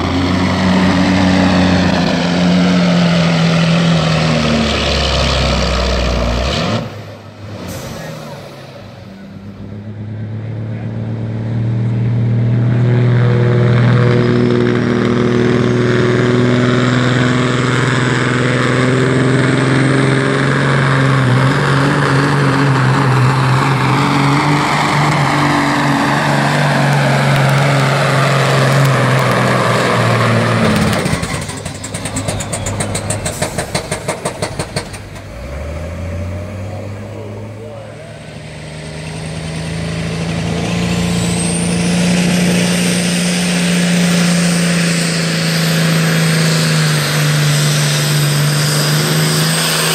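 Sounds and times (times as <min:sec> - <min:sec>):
diesel truck engine at full throttle: 0:00.0 - 0:49.9.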